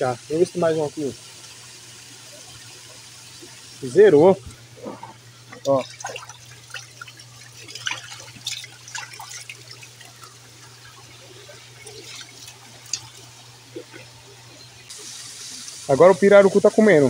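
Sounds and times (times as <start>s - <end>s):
water splashing from basin: 5.4s - 15.8s.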